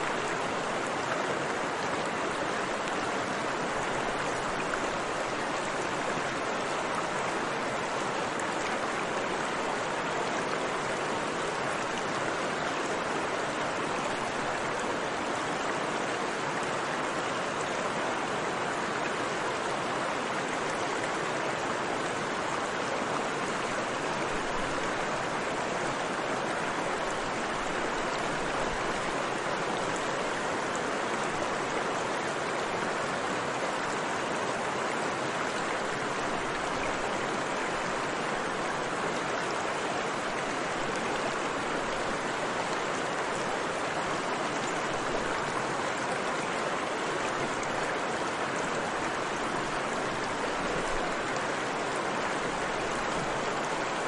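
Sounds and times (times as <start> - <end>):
river water rushing: 0.0 - 54.0.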